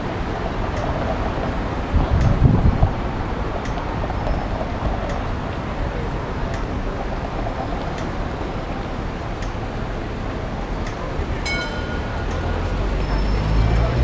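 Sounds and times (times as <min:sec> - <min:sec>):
people talking: 0:00.0 - 0:14.0
street traffic: 0:00.0 - 0:14.0.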